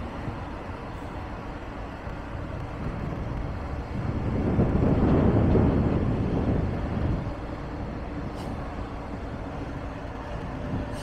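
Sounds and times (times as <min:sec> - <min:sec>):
train rumbling past: 0:00.0 - 0:11.0.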